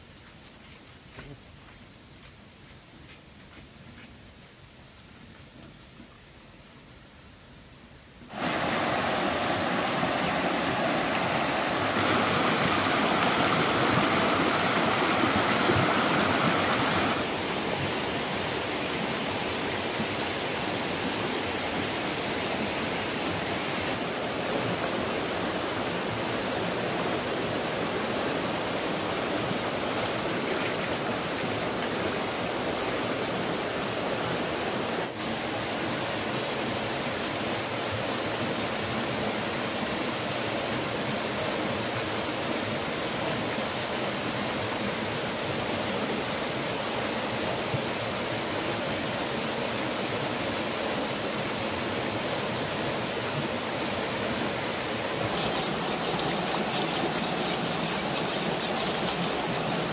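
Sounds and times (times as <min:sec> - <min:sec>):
stream rushing over rocks: 0:08.3 - 0:59.9.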